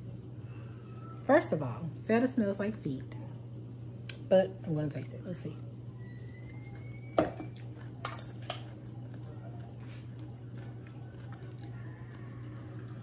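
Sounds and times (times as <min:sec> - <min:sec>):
steady low hum: 0:00.0 - 0:13.0
cutlery clinking against bowl: 0:07.2 - 0:08.8.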